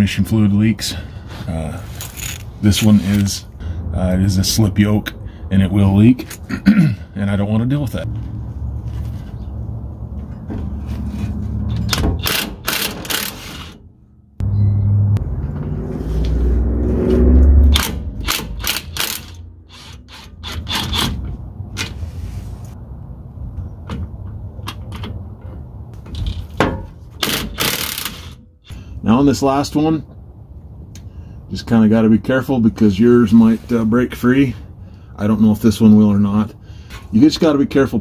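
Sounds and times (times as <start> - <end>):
low handling rumble: 13.9 - 19.7.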